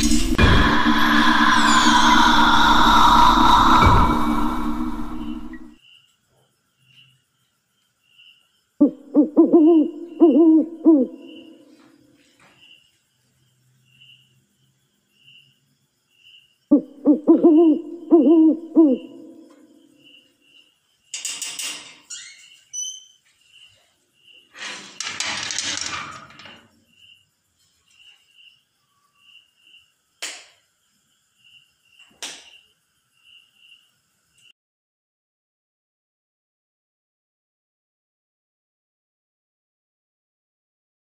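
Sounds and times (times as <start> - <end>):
hissing noise bursts: 0.0 - 5.7
owl hooting: 0.4 - 5.7, 8.8 - 11.7, 16.7 - 19.6
faint chirping: 0.8 - 11.8, 22.1 - 24.6.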